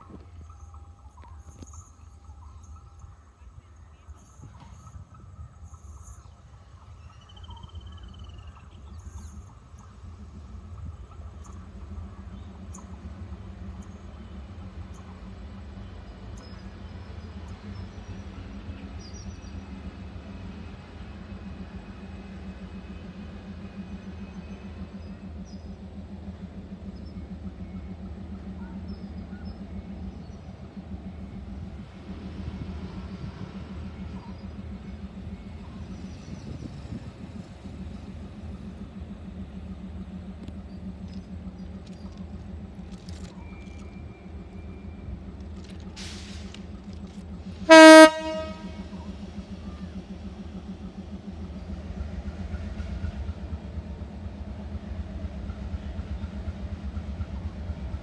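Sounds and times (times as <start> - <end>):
diesel locomotive idling: 0.0 - 58.0
steady low rumble: 20.4 - 58.0.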